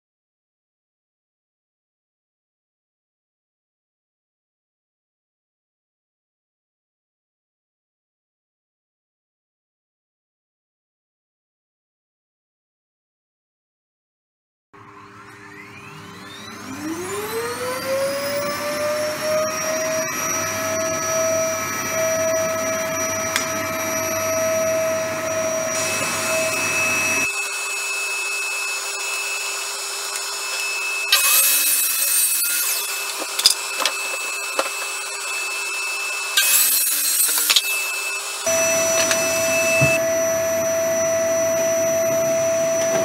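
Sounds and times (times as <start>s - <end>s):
electric motor whine: 14.8s - 43.0s
saw cutting board: 15.0s - 43.0s.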